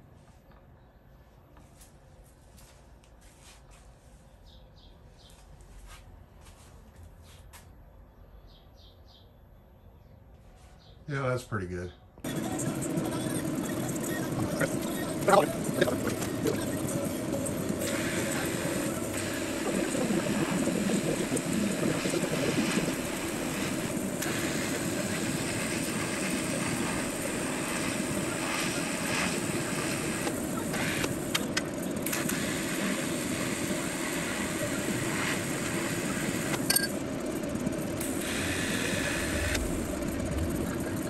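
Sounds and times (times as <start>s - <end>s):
welding machine hum: 12.2s - 41.0s
welding arc hiss: 12.3s - 36.8s, 38.0s - 40.9s.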